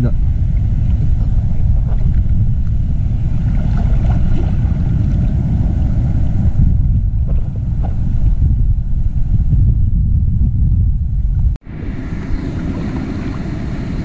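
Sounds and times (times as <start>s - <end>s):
surf washing: 0.0s - 8.4s, 11.6s - 14.0s
wind buffeting microphone: 0.0s - 14.0s.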